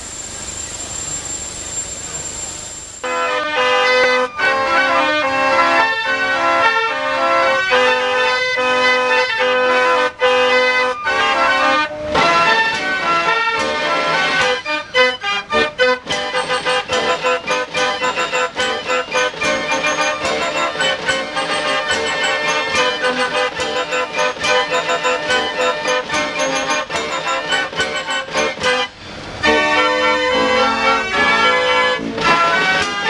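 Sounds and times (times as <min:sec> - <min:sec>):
fairground organ playing: 0:03.0 - 0:33.0
percussion strikes: 0:16.0 - 0:30.7.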